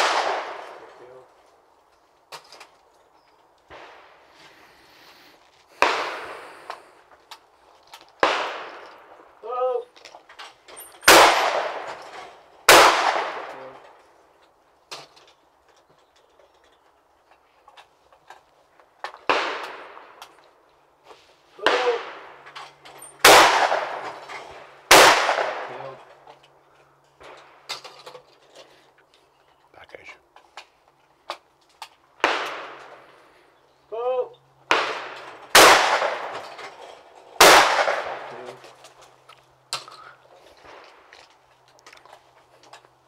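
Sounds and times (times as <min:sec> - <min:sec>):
loud shotgun shot: 0:00.0 - 0:00.9, 0:05.8 - 0:06.5, 0:08.2 - 0:08.9, 0:11.0 - 0:13.8, 0:19.2 - 0:20.2, 0:21.6 - 0:22.4, 0:23.2 - 0:26.0, 0:32.2 - 0:33.0, 0:34.7 - 0:36.6, 0:37.4 - 0:38.6.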